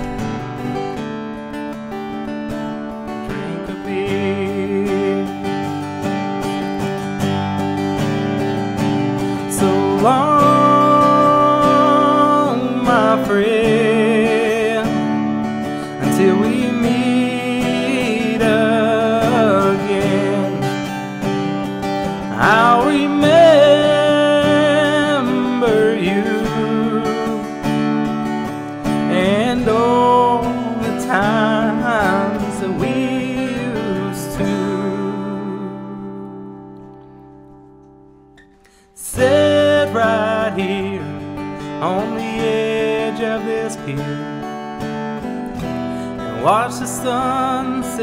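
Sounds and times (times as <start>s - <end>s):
acoustic guitar strumming: 0.0s - 48.0s
wordless singing: 3.3s - 5.6s, 9.3s - 15.1s, 15.9s - 27.7s, 29.0s - 36.4s, 39.0s - 44.2s, 46.0s - 48.0s.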